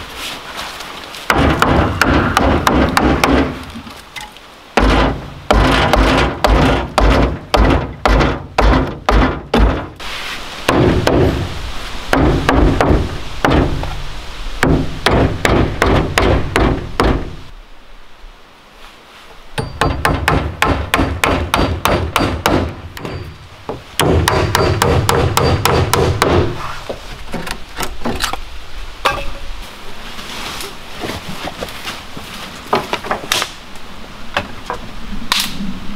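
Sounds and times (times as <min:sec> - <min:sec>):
hammer nailing wooden slats: 0:01.3 - 0:03.6, 0:04.8 - 0:10.0, 0:12.1 - 0:13.8, 0:14.6 - 0:17.4, 0:19.6 - 0:23.2, 0:24.0 - 0:26.6.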